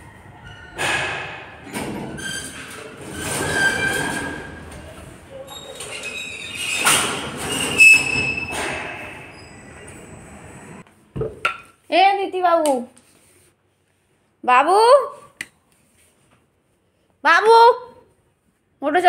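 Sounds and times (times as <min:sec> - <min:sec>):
metal squeal: 0:01.7 - 0:04.7, 0:05.5 - 0:10.2.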